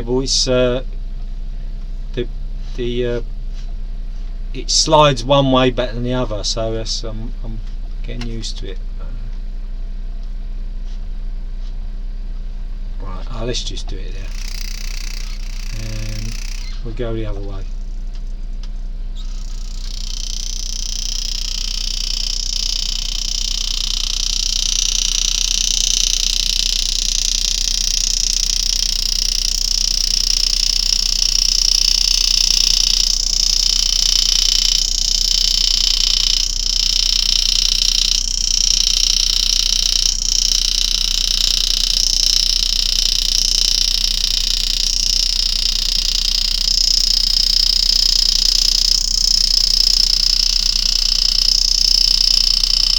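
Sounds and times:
low electrical hum: 0:00.0 - 0:52.9
engraving handpiece buzzing: 0:13.3 - 0:17.9, 0:19.1 - 0:52.9.

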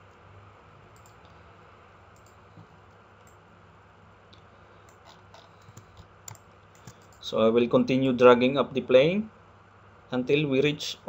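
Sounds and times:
low hum and hiss: 0:00.0 - 0:11.0
computer mouse clicks: 0:00.9 - 0:01.3, 0:02.2 - 0:02.4, 0:04.9 - 0:07.2.

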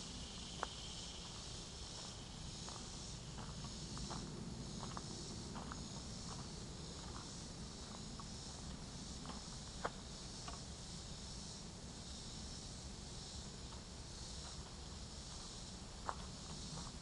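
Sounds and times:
insect chorus hiss: 0:00.0 - 0:17.0.

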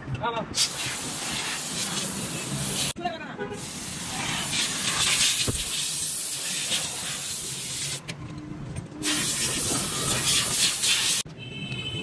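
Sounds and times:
high-pressure spray hissing: 0:00.6 - 0:03.0, 0:03.6 - 0:08.0, 0:09.0 - 0:11.2.

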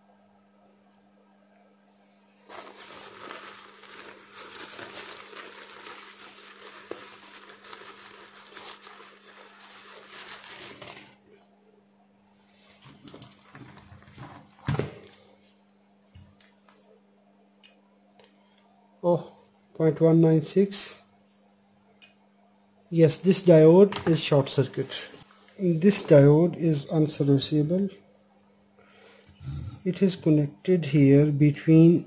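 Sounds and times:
faint steady hum: 0:00.0 - 0:32.0
tissue paper crinkling: 0:02.4 - 0:11.3.

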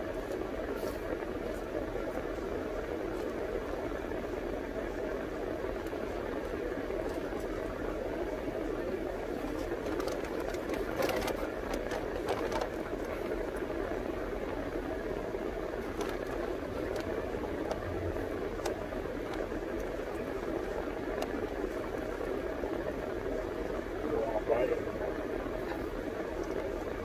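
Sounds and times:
car cabin hum: 0:08.9 - 0:27.0
faint clicks: 0:18.5 - 0:20.3.

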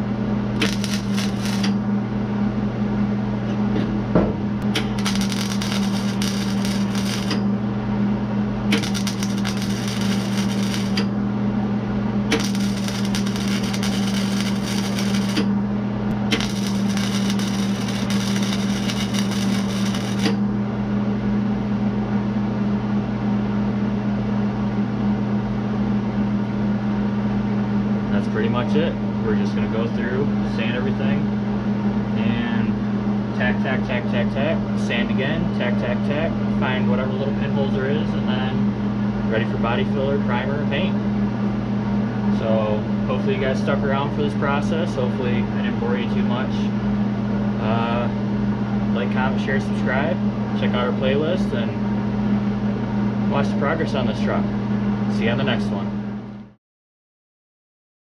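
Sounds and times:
steady low hum: 0:00.0 - 0:56.6
welder arc crackling: 0:00.6 - 0:01.8, 0:04.6 - 0:07.4, 0:08.7 - 0:11.1, 0:12.3 - 0:15.5, 0:16.1 - 0:20.4.

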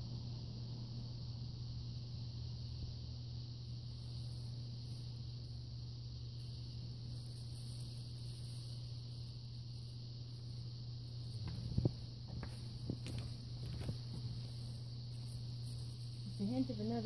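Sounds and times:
high hiss: 0:01.4 - 0:17.0
bubble wrap tapping against canvas: 0:11.3 - 0:16.5.

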